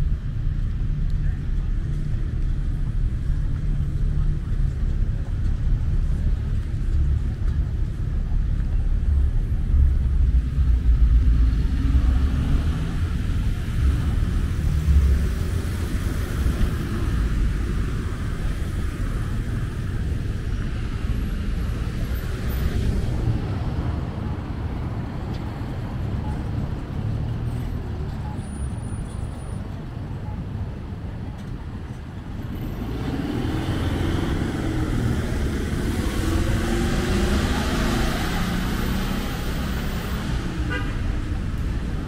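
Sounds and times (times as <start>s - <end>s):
highway traffic rumble: 0.0s - 42.0s.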